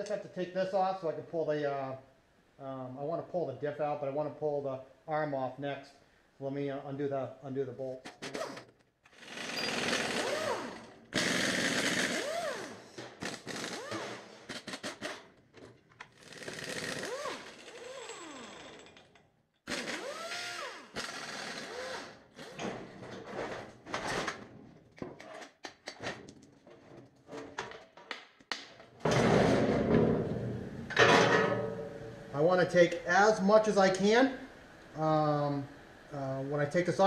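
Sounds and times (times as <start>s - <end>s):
pneumatic impact wrench rattling: 8.1s - 15.4s, 16.1s - 22.6s
metal clanks: 29.0s - 32.3s.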